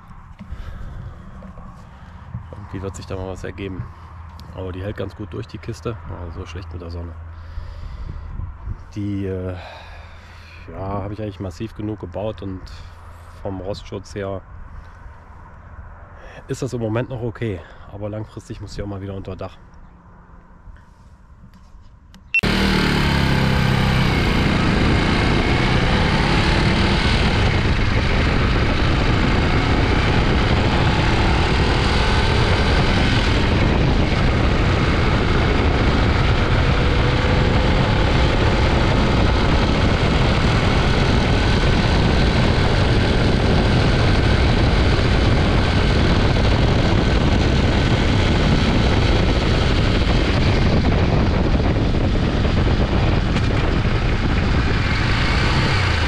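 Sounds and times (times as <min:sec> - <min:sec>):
motorcycle engine: 0:00.0 - 0:02.9, 0:22.1 - 0:56.0
wind on microphone: 0:00.0 - 0:06.2, 0:07.3 - 0:13.8, 0:22.5 - 0:56.0.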